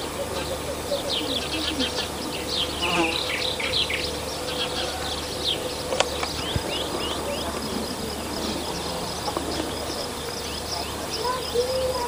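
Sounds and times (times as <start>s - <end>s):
small birds chirping: 0.0s - 12.0s
steady low hum: 0.0s - 12.0s
sharp click: 5.9s - 6.8s.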